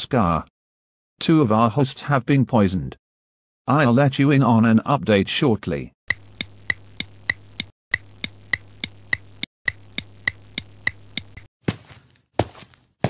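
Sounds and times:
clock ticking: 0:06.1 - 0:11.5.

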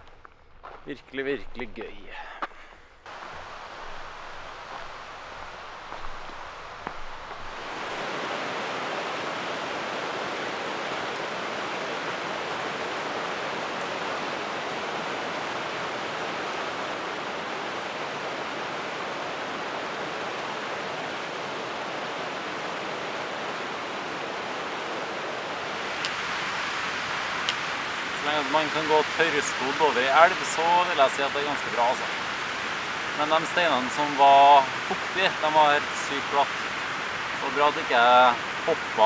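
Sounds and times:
stream rushing over rocks: 0:03.1 - 0:39.0.

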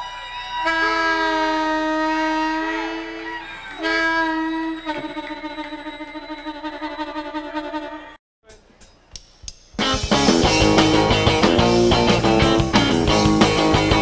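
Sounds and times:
harmonica playing: 0:00.0 - 0:08.2.

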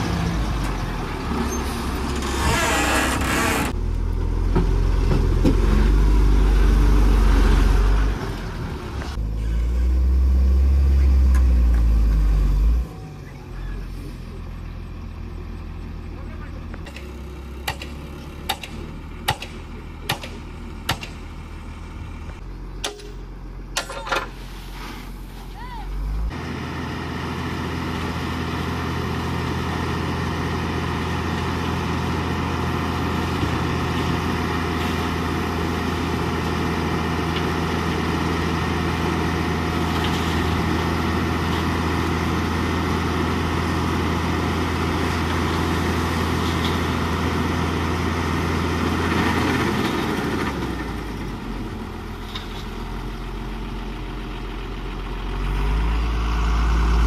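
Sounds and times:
heavy diesel engine running: 0:25.9 - 0:57.0.

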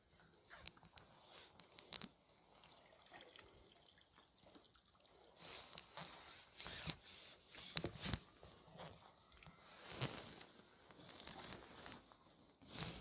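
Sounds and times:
water splashing and dripping: 0:02.5 - 0:05.4.

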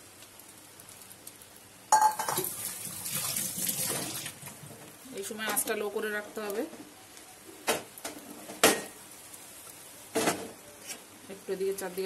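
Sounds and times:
omelette mixture sizzling: 0:00.0 - 0:12.0
utensil clinking on frying pan: 0:01.9 - 0:02.4.

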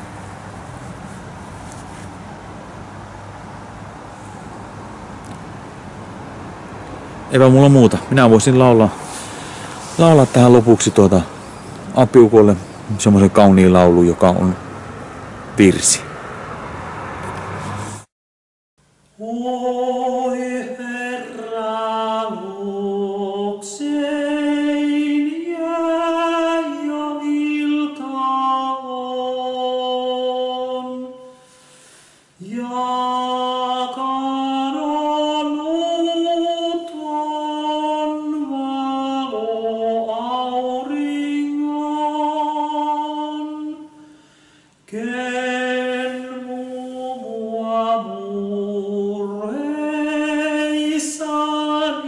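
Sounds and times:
man singing a hymn unaccompanied: 0:07.3 - 0:09.0, 0:09.9 - 0:14.6, 0:19.2 - 0:31.4, 0:32.4 - 0:44.1, 0:44.8 - 0:52.0.

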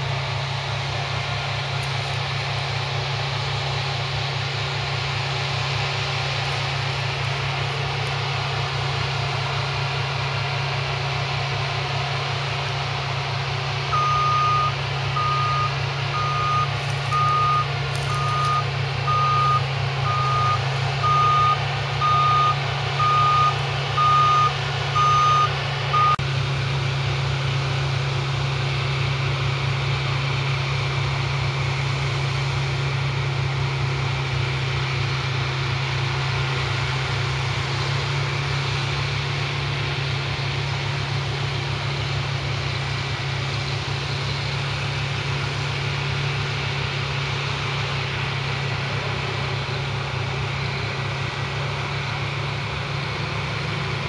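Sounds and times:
combine harvester running: 0:00.0 - 0:54.0
reversing alarm beeping: 0:13.9 - 0:26.2.

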